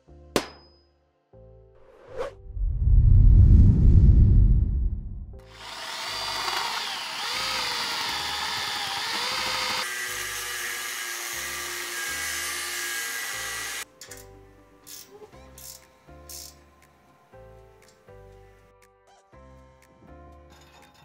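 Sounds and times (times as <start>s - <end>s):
background music: 0.0s - 2.6s, 5.2s - 21.0s
deep rumble: 2.2s - 5.4s
angle grinder cutting steel: 5.4s - 13.8s.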